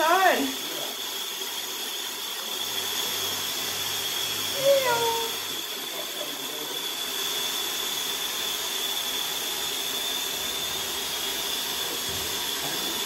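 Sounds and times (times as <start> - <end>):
thin high whine: 2.8 - 13.0.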